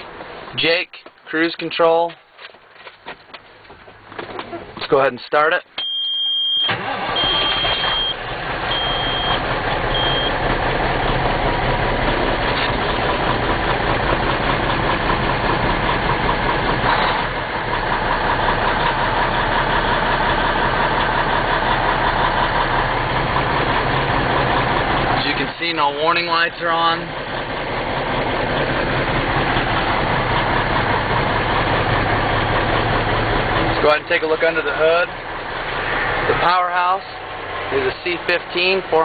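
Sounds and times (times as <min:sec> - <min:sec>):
high warning beep: 0:05.8 - 0:10.4
diesel engine idling: 0:05.8 - 0:39.0.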